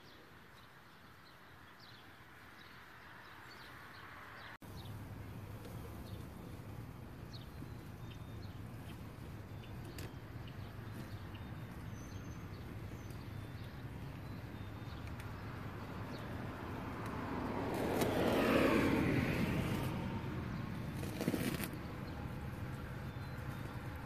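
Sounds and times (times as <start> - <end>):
low outdoor hum: 0.0 - 24.0
car passing by: 13.5 - 24.0.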